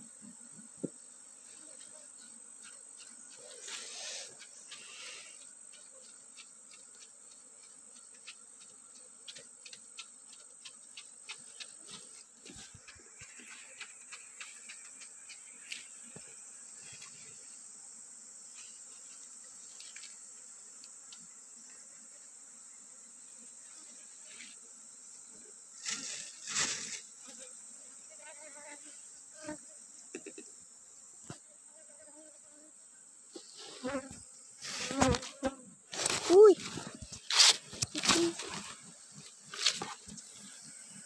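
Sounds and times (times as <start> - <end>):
leaves rustling: 25.8 - 27.1, 34.6 - 40.5.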